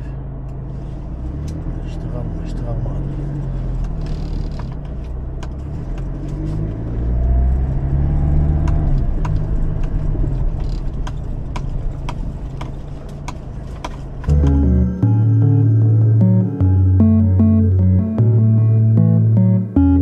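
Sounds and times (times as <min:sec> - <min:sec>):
pickup engine and tyre noise: 0:00.0 - 0:20.0.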